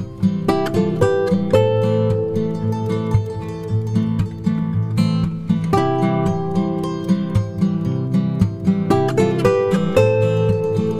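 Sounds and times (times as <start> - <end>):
instrumental music with plucked notes: 0.0 - 10.9.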